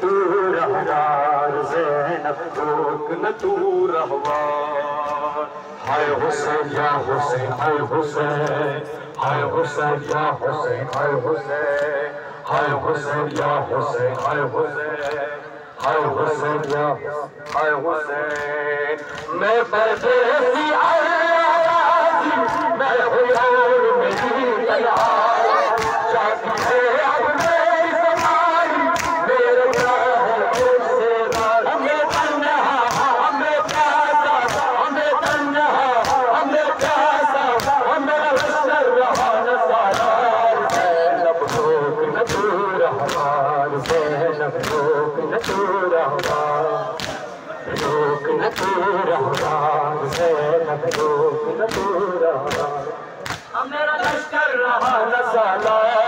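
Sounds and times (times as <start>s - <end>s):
men chanting in unison: 0.0s - 56.0s
hands slapping on chests: 15.0s - 16.0s, 16.6s - 16.8s, 17.4s - 20.2s, 24.1s - 28.4s, 29.0s - 31.5s, 32.1s - 54.2s.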